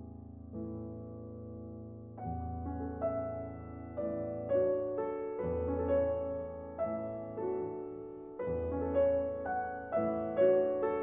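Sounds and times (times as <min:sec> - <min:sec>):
slow soft piano melody: 0:00.0 - 0:11.0.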